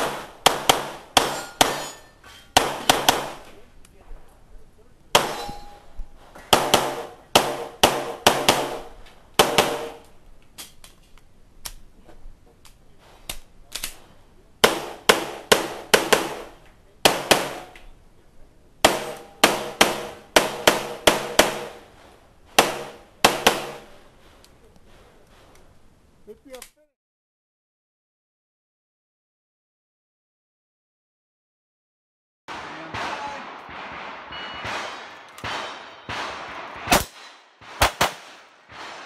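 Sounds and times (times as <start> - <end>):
pistol shots: 0.0 - 2.0, 2.6 - 3.6, 5.1 - 5.8, 6.5 - 10.1, 14.6 - 17.8, 18.8 - 21.9, 22.6 - 23.9, 32.5 - 39.0.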